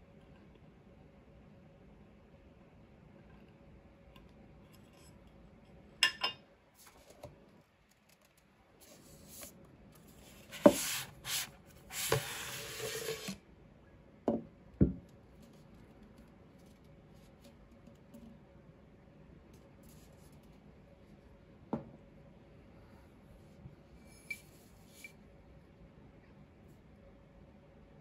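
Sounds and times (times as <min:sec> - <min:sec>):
bottle scraping out of tube: 0:10.8 - 0:13.4
bottle knocking on wooden table: 0:14.3 - 0:15.0.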